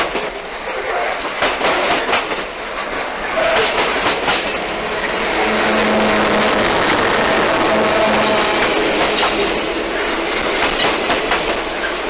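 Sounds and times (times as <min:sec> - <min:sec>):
train wheels clicking over rail joints: 0:00.0 - 0:05.2, 0:06.4 - 0:12.0
locomotive engine drone: 0:02.8 - 0:12.0.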